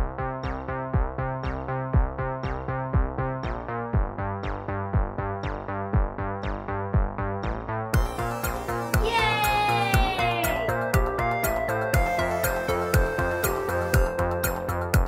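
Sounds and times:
steady beat: 0.0s - 15.0s
keyboard chords: 7.4s - 15.0s.

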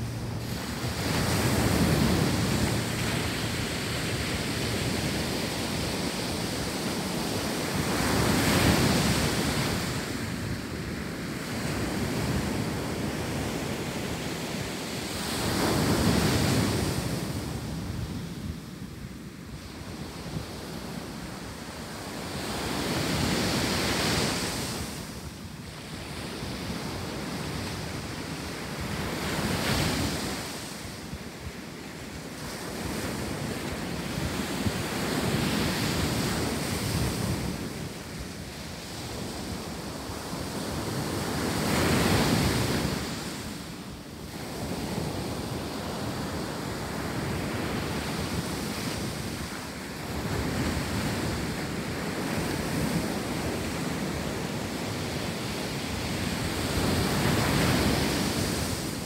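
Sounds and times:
wind buffeting microphone: 0.0s - 18.9s
ocean surf breaking on beach: 0.0s - 59.0s.

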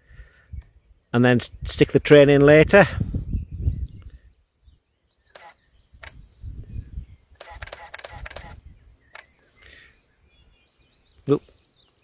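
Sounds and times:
camera button and shutter clicks: 5.3s - 6.2s, 7.4s - 9.3s.

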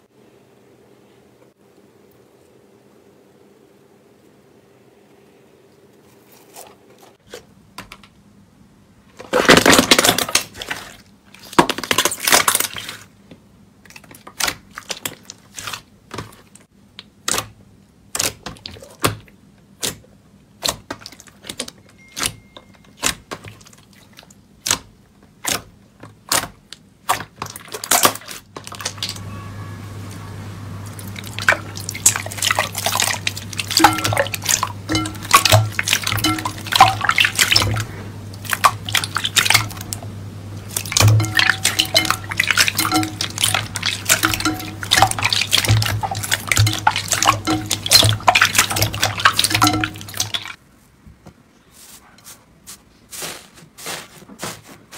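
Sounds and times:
slime squelching: 9.2s - 13.2s, 13.8s - 29.2s, 30.8s - 50.6s
low hum: 28.8s - 50.6s
wet crackling: 30.8s - 50.6s.

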